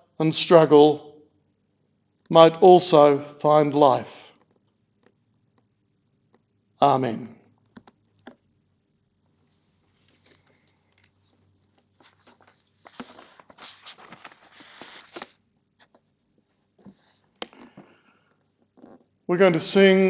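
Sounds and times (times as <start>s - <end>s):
papers rustling: 9.3s - 16.1s.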